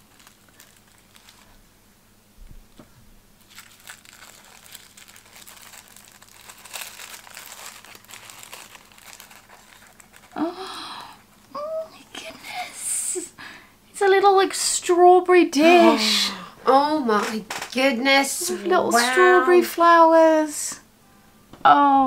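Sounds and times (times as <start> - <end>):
tissue paper crinkling: 0.0 - 1.6, 3.4 - 11.5.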